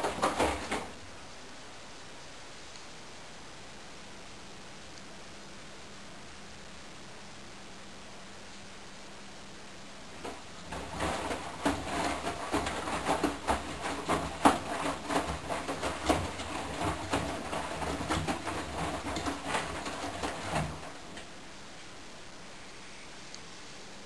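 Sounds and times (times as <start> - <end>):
washing machine drum turning: 0.0 - 1.1, 10.2 - 21.4
wet laundry swishing and thumping: 0.0 - 1.1, 10.2 - 21.4.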